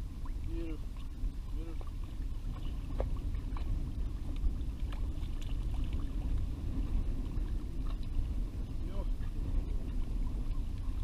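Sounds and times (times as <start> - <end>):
water lapping against boat: 0.0 - 11.0
wind rumble on microphone: 0.0 - 11.0
faint splashes and knocks: 0.4 - 6.9.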